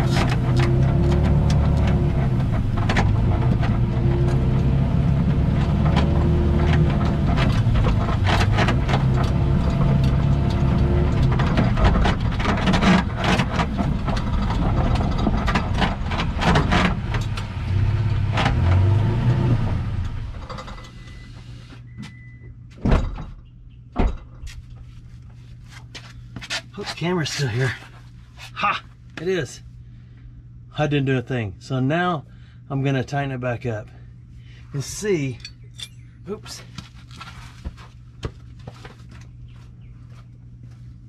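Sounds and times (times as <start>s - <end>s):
truck engine revving: 0.0s - 11.8s, 15.9s - 20.2s
suspension clicks and crackles: 0.0s - 18.9s
brief beep: 21.0s - 21.3s, 21.9s - 22.5s.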